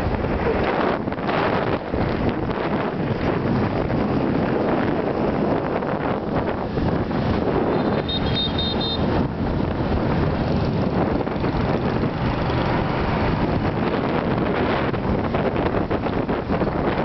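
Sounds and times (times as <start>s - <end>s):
wind buffeting the microphone: 0.0s - 8.3s, 9.0s - 17.0s
motorbike road noise: 0.0s - 17.0s
short high horn beeps: 7.7s - 9.1s.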